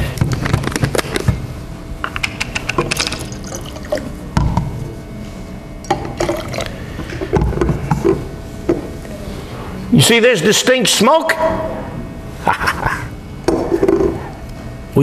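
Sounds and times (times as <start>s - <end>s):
liquid pouring into glass cylinder: 2.9s - 4.2s, 6.0s - 6.8s.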